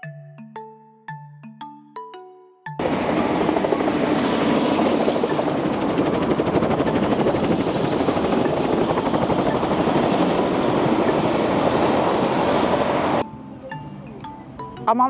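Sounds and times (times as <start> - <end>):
helicopter rotor and engine: 2.8 - 13.2.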